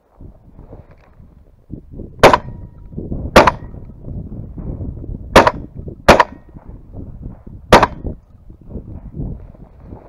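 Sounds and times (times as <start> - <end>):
shotgun shots: 2.2 - 2.6, 3.3 - 3.8, 5.3 - 6.5, 7.7 - 8.0.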